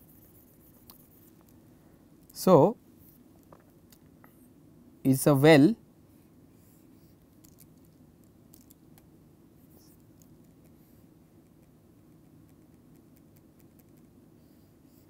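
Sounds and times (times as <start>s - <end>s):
stylus scratching on tablet: 0.0s - 1.5s, 11.4s - 14.1s.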